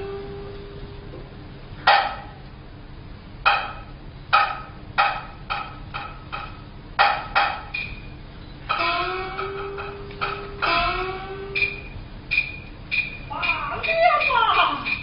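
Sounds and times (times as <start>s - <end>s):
gong and drum strokes: 0.0s - 1.2s, 8.7s - 12.0s.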